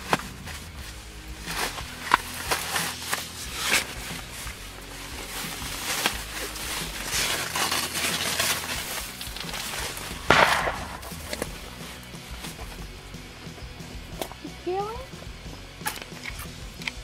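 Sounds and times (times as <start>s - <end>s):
fabric and clothing rustling: 0.0s - 10.2s.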